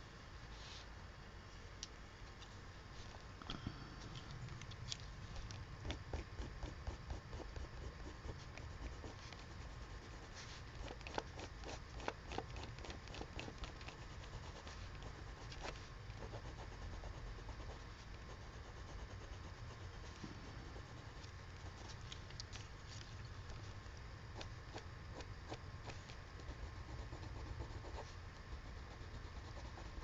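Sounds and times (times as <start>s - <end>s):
low steady rumble: 0.0s - 30.0s
pencil scratching on paper: 5.8s - 22.0s, 24.4s - 30.0s.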